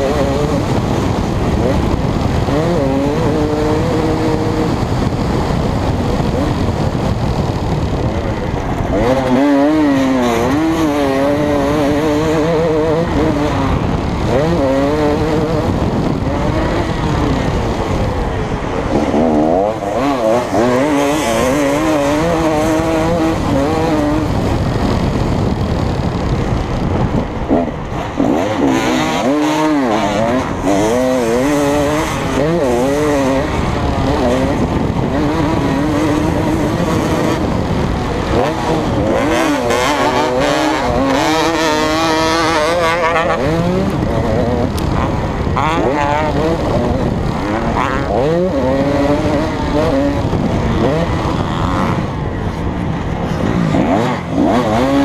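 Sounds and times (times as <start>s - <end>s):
motocross bike engine revving: 0.0s - 55.0s
wind rushing: 0.0s - 55.0s.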